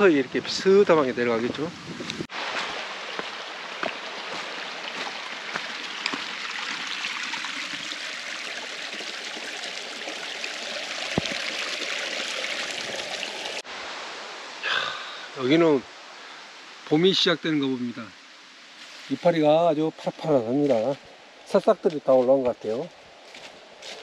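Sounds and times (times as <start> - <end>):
stream water running over rocks: 0.0 - 24.0.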